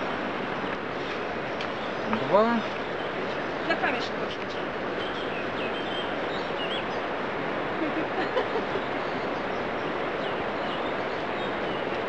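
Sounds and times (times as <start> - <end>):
mountain stream rushing: 0.0 - 12.0
small birds chirping: 1.4 - 7.2, 8.2 - 12.0.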